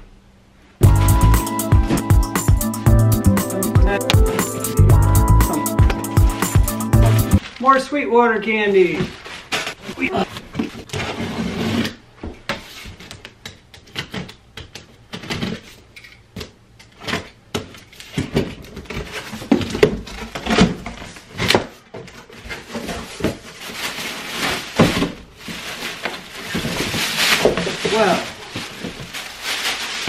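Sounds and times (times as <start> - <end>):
plastic bag rustling: 0.8 - 2.1, 5.6 - 11.1, 22.3 - 30.0
cardboard scraping and tearing: 8.9 - 12.0, 18.7 - 30.0.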